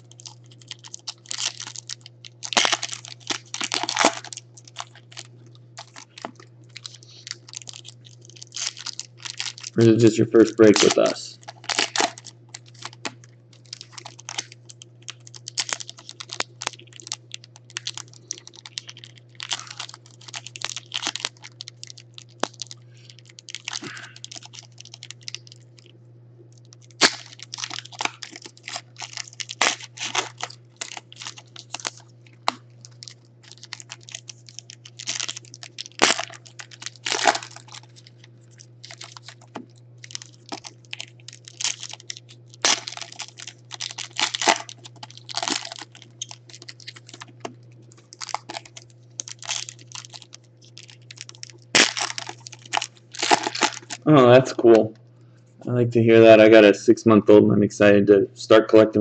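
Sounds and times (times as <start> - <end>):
foil wrappers crinkling and tearing: 0.0 - 55.0
steady low hum: 0.0 - 59.0.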